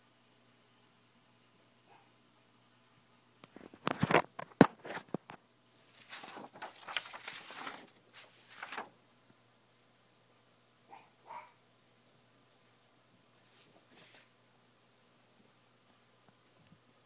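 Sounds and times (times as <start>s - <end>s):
paper rustling: 3.6s - 9.0s, 13.4s - 14.3s.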